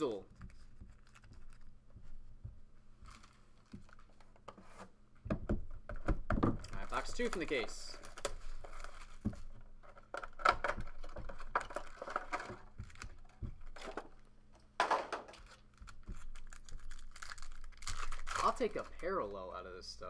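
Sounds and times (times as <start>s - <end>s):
plastic wrap crinkling: 3.0s - 4.4s, 6.6s - 14.2s, 15.3s - 19.3s
plastic wrap ripping: 6.8s - 9.2s, 15.3s - 19.2s
box cutter slitting plastic wrap: 16.4s - 18.8s.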